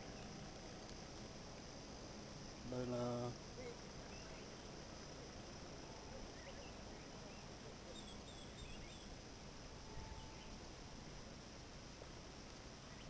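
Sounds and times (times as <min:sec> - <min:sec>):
high insect hum: 0:00.0 - 0:13.0
low wind rumble: 0:00.0 - 0:13.0
bird chirps: 0:04.0 - 0:04.6, 0:06.3 - 0:09.1, 0:09.9 - 0:10.6.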